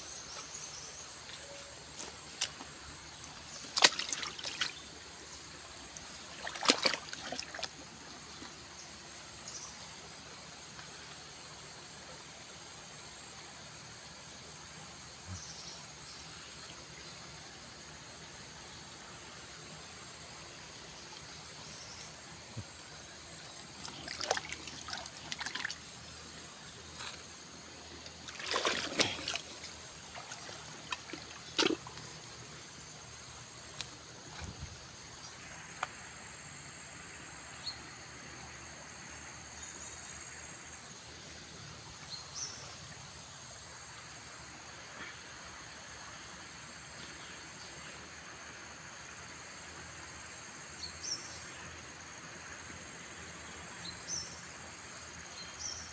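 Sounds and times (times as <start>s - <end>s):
floodwater trickling and lapping: 0.0s - 36.2s
water splashing: 2.0s - 8.6s, 23.4s - 26.0s, 27.8s - 32.8s.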